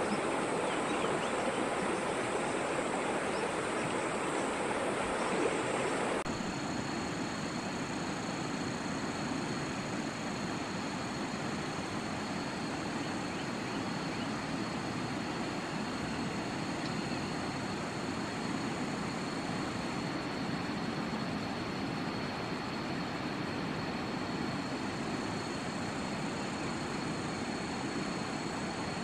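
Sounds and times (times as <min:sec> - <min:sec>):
river running over stones: 0:00.0 - 0:06.3.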